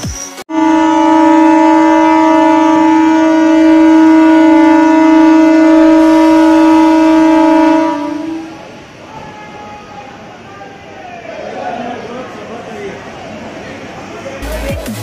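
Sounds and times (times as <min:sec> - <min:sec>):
train horn: 0:00.5 - 0:09.9.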